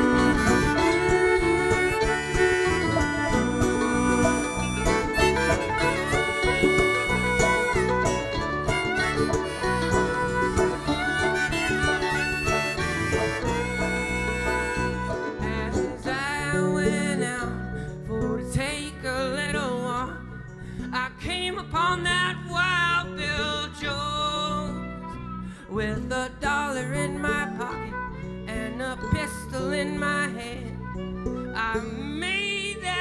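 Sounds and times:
wavering lead melody: 0:00.0 - 0:20.7
acoustic guitar chords: 0:00.0 - 0:33.0.

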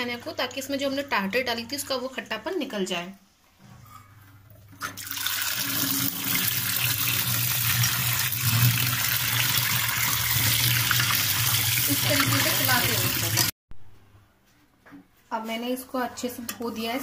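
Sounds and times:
water running over curds: 0:05.0 - 0:13.6.

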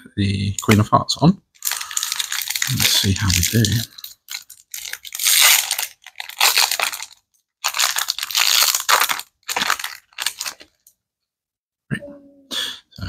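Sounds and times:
foil wrapper crinkling: 0:01.6 - 0:10.9.

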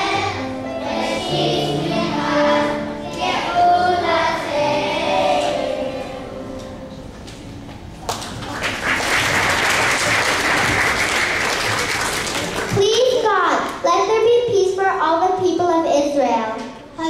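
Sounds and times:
children singing: 0:00.0 - 0:06.6
audience applause: 0:08.1 - 0:12.8.

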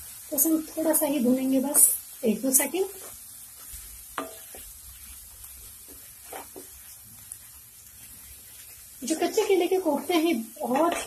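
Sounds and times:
paste sizzling in oil: 0:00.0 - 0:11.0
spatula scraping pan: 0:02.6 - 0:11.0.

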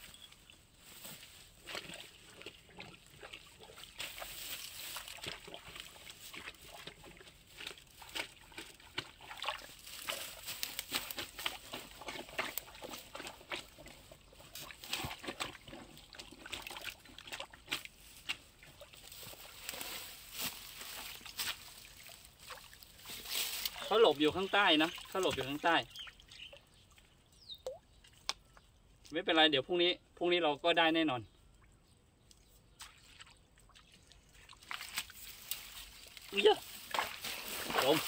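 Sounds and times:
dry grass crackling underfoot: 0:00.0 - 0:15.6, 0:17.4 - 0:25.7, 0:34.5 - 0:38.0.

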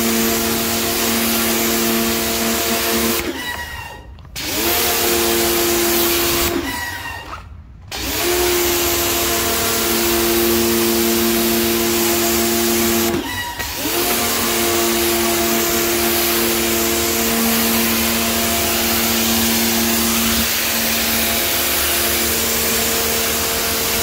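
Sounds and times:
pressure washer motor hum: 0:00.0 - 0:07.2, 0:07.9 - 0:24.0
water spray hissing: 0:13.8 - 0:24.0.

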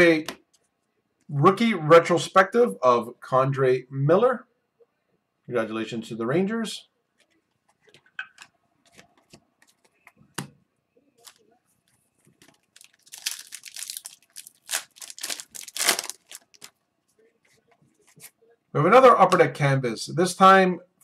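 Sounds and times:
foil pack tearing and crinkling: 0:12.7 - 0:16.7.

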